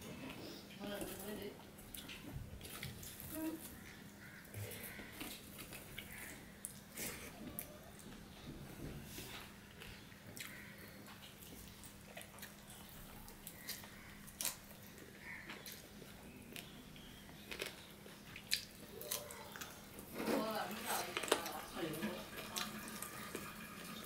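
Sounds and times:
person chewing with mouth clicks: 0:09.7 - 0:19.8.

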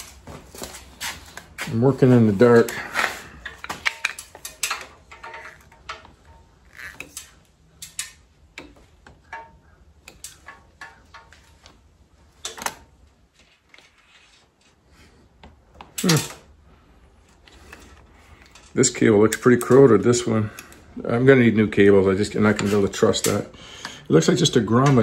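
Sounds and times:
small metal parts clicking: 0:03.4 - 0:11.5.

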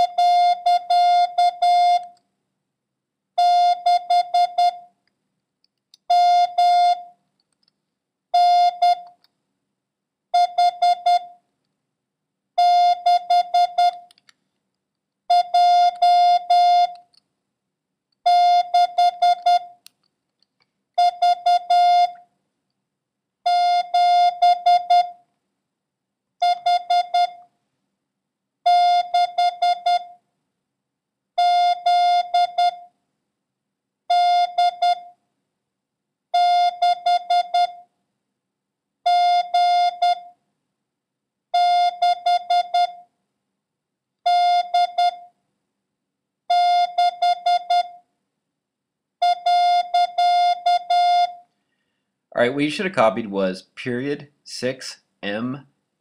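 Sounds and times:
morse code beeps: 0:18.3 - 0:19.7.

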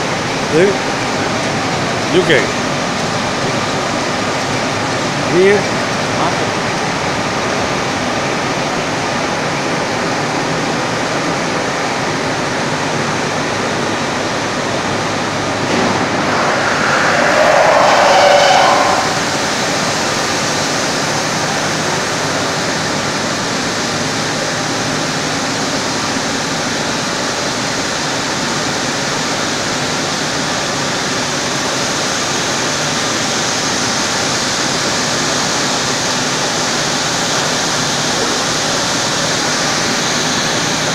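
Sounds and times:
mill machinery roaring: 0:13.0 - 0:23.3.

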